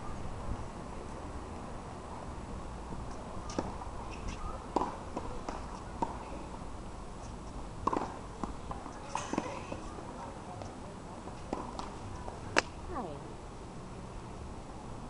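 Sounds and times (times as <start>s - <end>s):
low outdoor hum: 0.0s - 15.0s
tennis balls struck by rackets: 3.1s - 6.3s, 7.8s - 10.1s, 11.2s - 12.8s
tennis balls bouncing on court: 3.5s - 6.4s, 7.8s - 12.7s.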